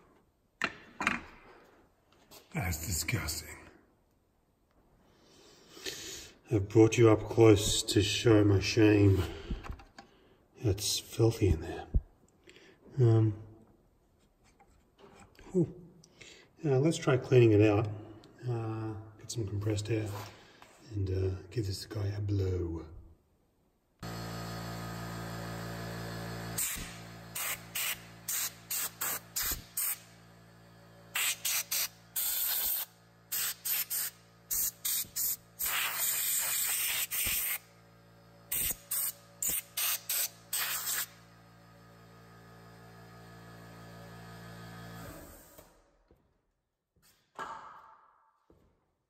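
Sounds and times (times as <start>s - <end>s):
air compressor humming: 24.0s - 45.9s
compressed air blasts: 25.6s - 41.4s.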